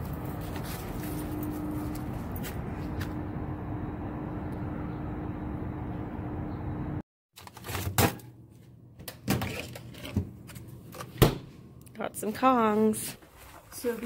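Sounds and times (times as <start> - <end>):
items handled on fridge shelves: 0.0 - 3.2, 7.4 - 14.0
constant hum: 0.0 - 7.0.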